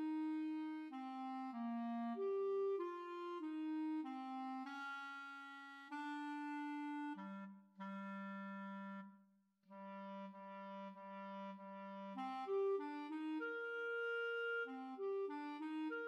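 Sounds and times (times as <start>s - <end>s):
clarinet playing: 0.0s - 9.0s, 9.8s - 16.0s.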